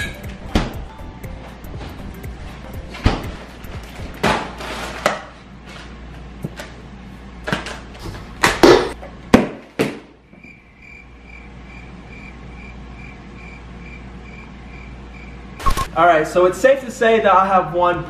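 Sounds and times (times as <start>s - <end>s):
irregular knocks and thuds: 0.4s - 0.9s, 2.8s - 4.3s.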